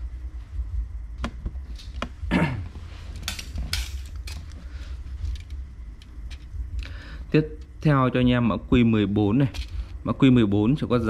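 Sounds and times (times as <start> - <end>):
steady low rumble: 0.0 - 11.0
metal parts clinking: 3.1 - 4.6, 5.2 - 6.5, 9.4 - 9.9.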